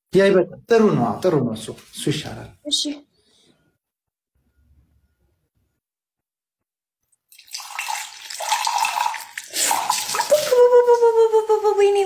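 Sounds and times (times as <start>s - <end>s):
water splashing through hair: 7.3s - 10.8s.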